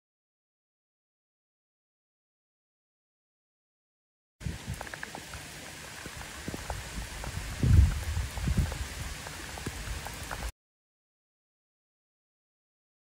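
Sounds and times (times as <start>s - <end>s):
heavy rain on cars and pavement: 4.4s - 10.5s
low rumbling thumps: 6.5s - 9.1s.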